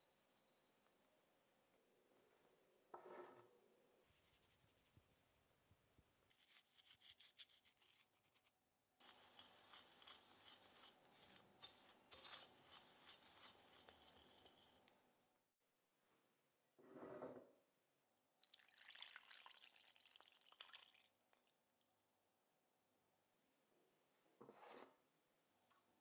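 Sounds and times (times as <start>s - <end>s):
whisk stirring flour in bowl: 9.0s - 14.9s.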